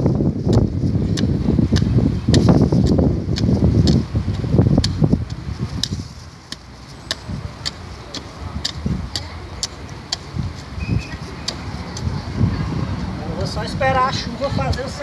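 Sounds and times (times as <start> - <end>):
hand hoe ticking into soil: 0.5 - 12.1.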